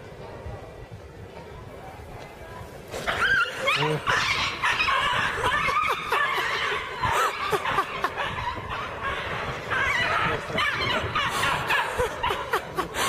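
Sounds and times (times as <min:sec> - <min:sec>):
people laughing: 0:03.5 - 0:13.0.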